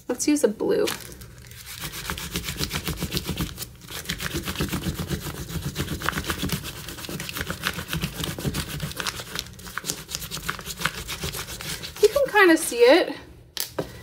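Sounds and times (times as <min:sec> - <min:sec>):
crayon scratching on paper: 0:01.7 - 0:12.4.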